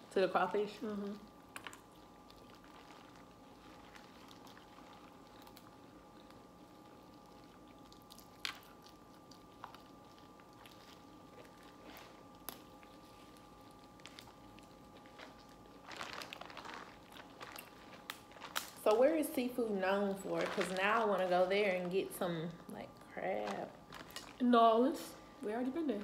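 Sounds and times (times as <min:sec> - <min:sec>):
person chewing: 0:01.5 - 0:18.8.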